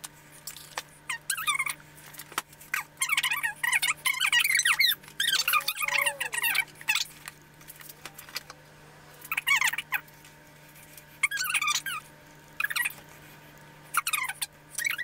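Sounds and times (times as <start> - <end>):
faint steady hum: 0.0 - 15.0
sped-up squeaky voice chatter: 2.8 - 7.1, 11.2 - 13.0.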